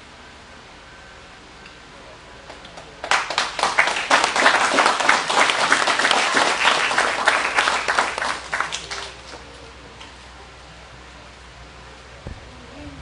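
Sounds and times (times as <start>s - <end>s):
audience applauding: 2.8s - 9.5s.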